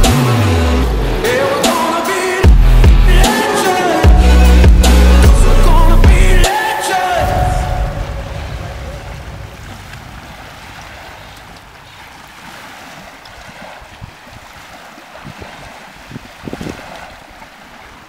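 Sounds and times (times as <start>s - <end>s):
lake water lapping: 0.2s - 18.0s
wind on microphone: 7.2s - 18.0s.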